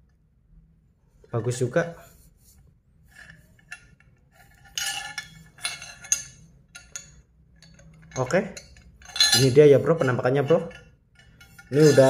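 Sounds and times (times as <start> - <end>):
metal pipe clinking: 3.1 - 12.0.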